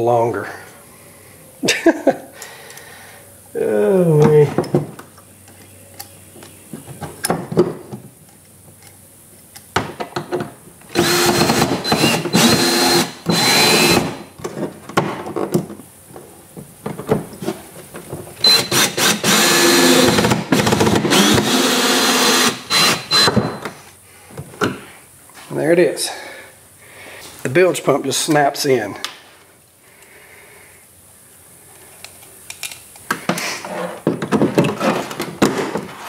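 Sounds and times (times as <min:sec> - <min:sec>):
cordless drill whining: 0:10.9 - 0:14.2, 0:18.4 - 0:23.6.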